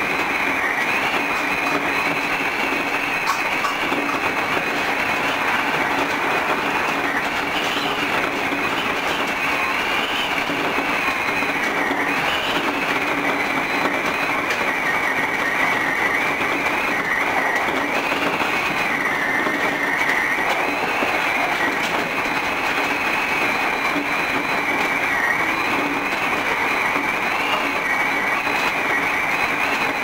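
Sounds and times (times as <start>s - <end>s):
wheels rumbling on rail: 0.0s - 30.0s.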